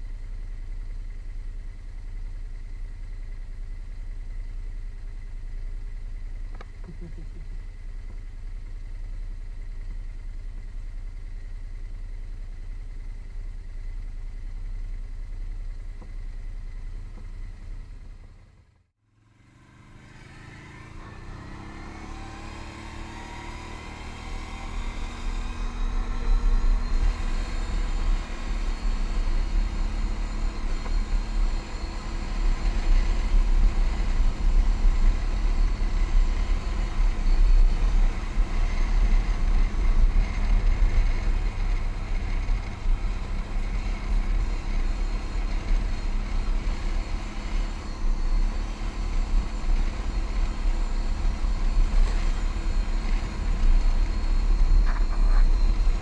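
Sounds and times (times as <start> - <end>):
engine running and revving: 0.0 - 56.0.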